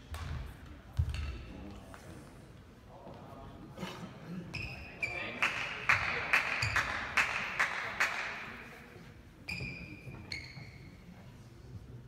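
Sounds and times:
spectators clapping: 5.4 - 8.6
shoes squeaking on court floor: 9.4 - 11.2.

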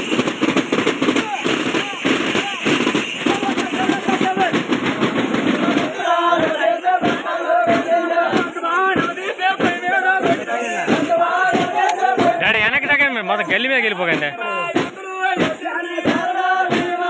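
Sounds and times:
frame drums beating fast rolls: 0.0 - 17.0
men chanting in unison: 1.2 - 17.0.

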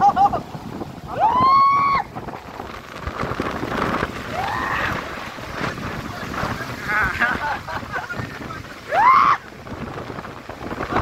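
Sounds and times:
water roaring through spillway: 0.0 - 11.0.

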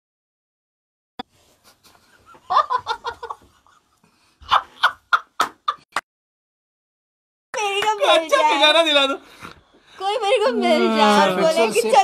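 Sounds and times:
group of people laughing: 1.8 - 5.9.

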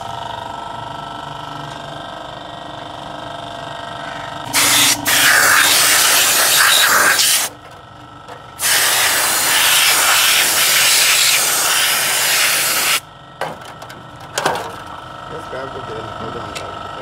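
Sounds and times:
spray gun hissing: 4.6 - 7.5, 8.6 - 13.0.

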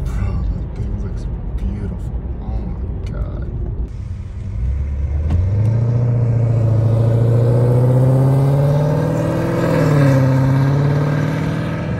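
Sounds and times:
car engine accelerating: 3.6 - 11.9.

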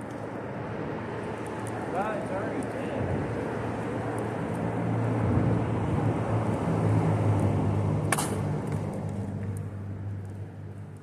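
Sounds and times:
wind noise: 1.2 - 9.5.

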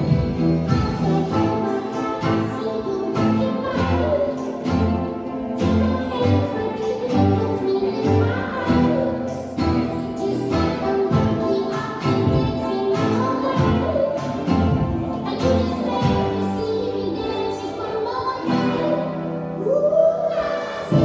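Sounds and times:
children singing: 0.0 - 21.0
ukuleles and guitars strumming: 0.0 - 21.0.

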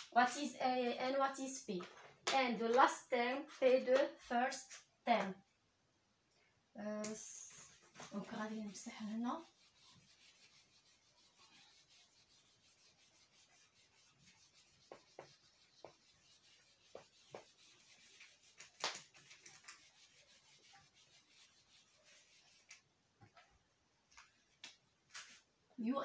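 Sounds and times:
eraser rubbing on whiteboard: 7.3 - 22.8.

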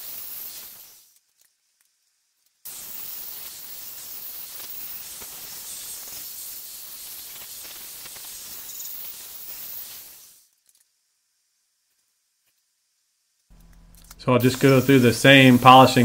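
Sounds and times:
angle grinder polishing steel: 13.6 - 16.0.

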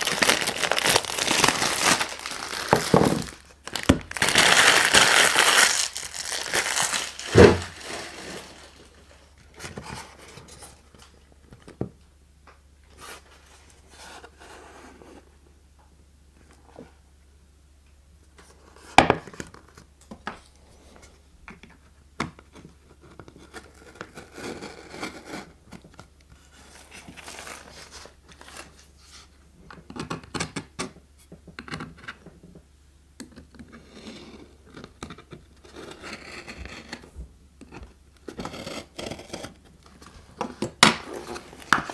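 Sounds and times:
cellophane wrapper crinkling: 0.0 - 9.2
thump: 7.3 - 7.8
knocks and scrapes on wooden box: 7.4 - 7.7.

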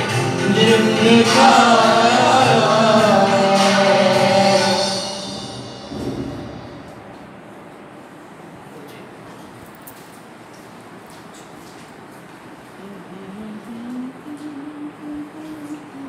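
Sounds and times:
sung worship music: 0.0 - 7.5.

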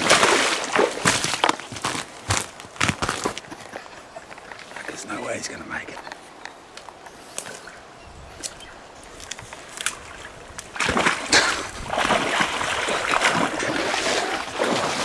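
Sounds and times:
boots splashing through water: 0.0 - 3.5, 9.6 - 15.0.

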